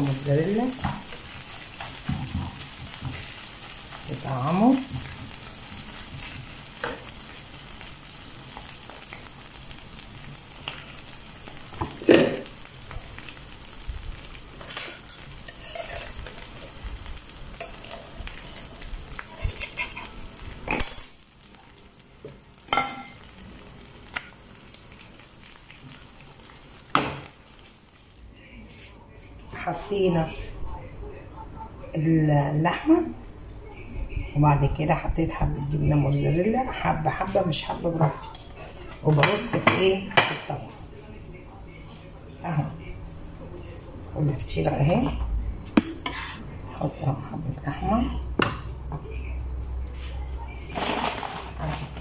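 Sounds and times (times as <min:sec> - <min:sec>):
meat sizzling in a frying pan: 0:00.0 - 0:28.2
spatula scraping and knocking pan: 0:14.6 - 0:16.7, 0:17.6 - 0:20.8, 0:45.7 - 0:46.4.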